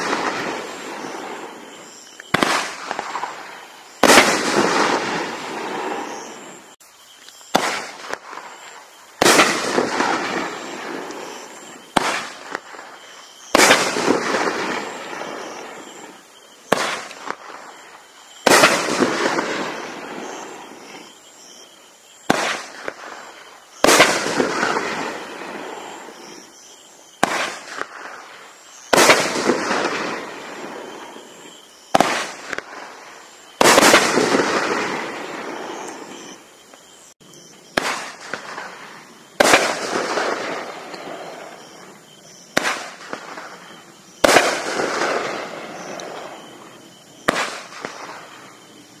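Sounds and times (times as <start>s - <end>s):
firework aerial break: 0.0s - 6.6s.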